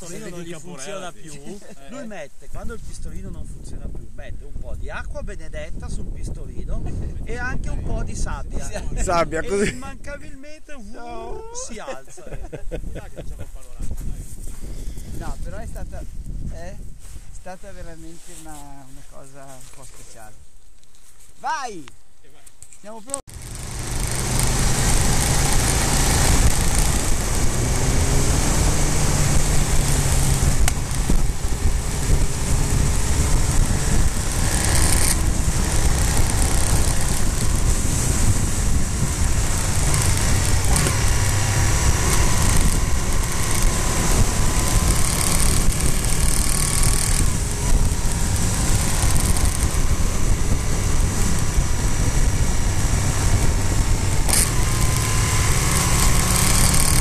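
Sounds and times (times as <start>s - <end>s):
wind and road noise: 0.0s - 57.0s
motorcycle engine running: 23.3s - 57.0s.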